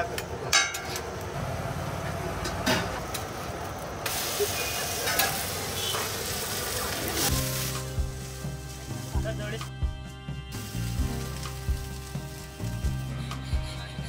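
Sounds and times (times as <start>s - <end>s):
water hissing on hot griddle: 3.0s - 9.7s, 10.5s - 14.0s.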